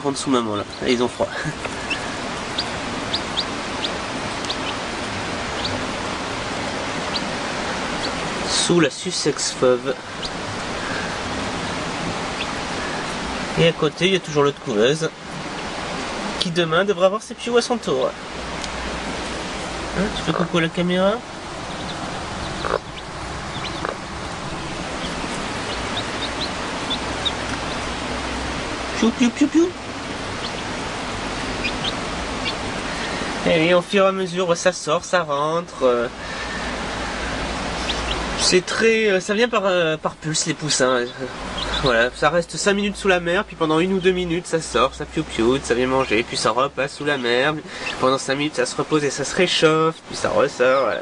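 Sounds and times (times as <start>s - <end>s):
steady hiss: 0.0s - 51.0s
chicks peeping: 0.1s - 14.5s, 17.6s - 34.2s, 36.2s - 39.6s, 40.2s - 44.6s, 47.0s - 48.8s.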